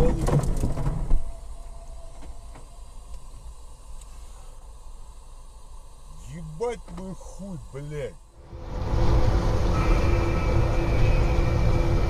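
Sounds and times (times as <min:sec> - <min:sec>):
loud noisy burst: 0:06.3 - 0:12.0.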